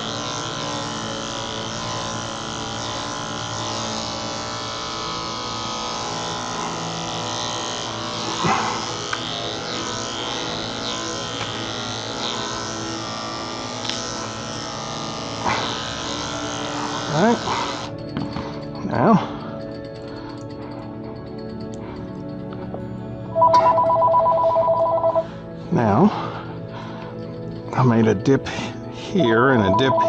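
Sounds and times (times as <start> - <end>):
electric clipper running: 0.0 - 19.4, 29.2 - 30.0.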